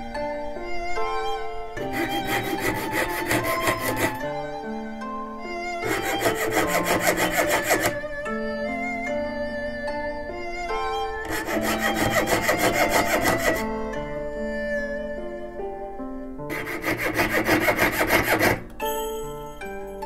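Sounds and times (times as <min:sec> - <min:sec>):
string background music: 0:00.0 - 0:20.0
saw rasping on metal: 0:01.8 - 0:04.2, 0:05.8 - 0:08.0, 0:11.2 - 0:13.7, 0:16.5 - 0:18.7.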